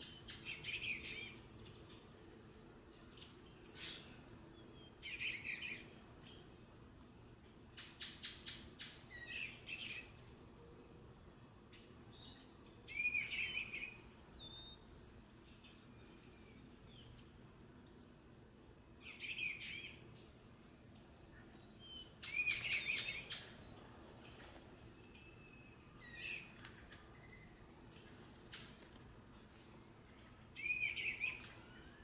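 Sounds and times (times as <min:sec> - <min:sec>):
bird singing warbled phrases: 0:00.0 - 0:02.0, 0:03.1 - 0:06.4, 0:08.0 - 0:10.2, 0:11.8 - 0:14.9, 0:19.0 - 0:20.2, 0:21.3 - 0:23.9, 0:25.1 - 0:29.4, 0:30.5 - 0:32.0
faint steady high whine: 0:00.0 - 0:32.0.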